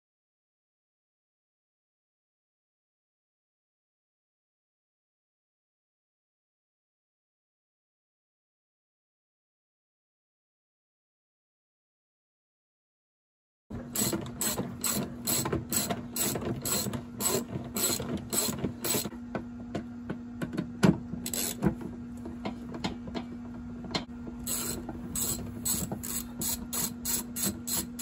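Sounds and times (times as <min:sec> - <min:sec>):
steady low hum: 0:13.7 - 0:28.0
ratchet wrench clicking: 0:14.0 - 0:19.1, 0:21.3 - 0:21.6, 0:24.5 - 0:28.0.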